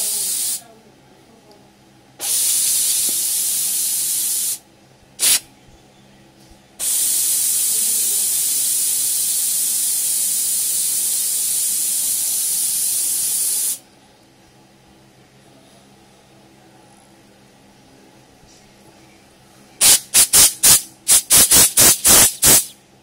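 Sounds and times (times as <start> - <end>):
pressurized gas hissing: 0.0 - 0.6, 2.2 - 4.6, 5.2 - 5.4, 6.8 - 13.8, 19.8 - 22.7.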